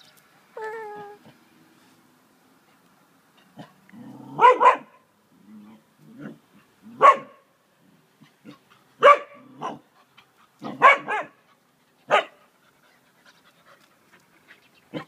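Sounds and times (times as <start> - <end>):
dogs barking: 4.4 - 5.0, 7.0 - 7.4, 9.0 - 9.8, 10.6 - 11.4, 12.1 - 12.4.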